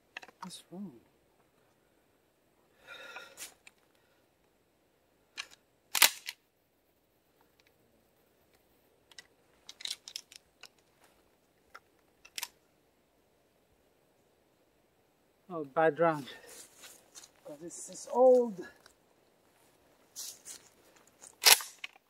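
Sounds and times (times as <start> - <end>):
shotgun action clicking: 5.4 - 6.4, 21.4 - 22.0.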